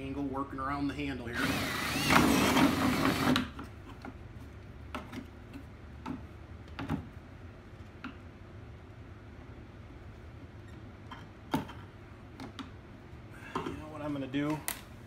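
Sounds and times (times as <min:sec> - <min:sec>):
cordless drill boring: 0:01.4 - 0:03.5.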